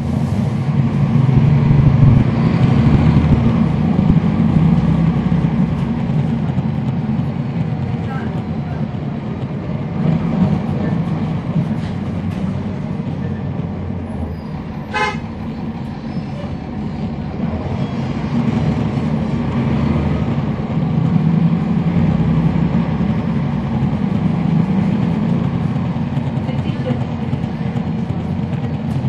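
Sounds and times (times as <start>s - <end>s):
bus diesel engine drone: 0.0s - 29.0s
short horn toot: 14.8s - 15.3s.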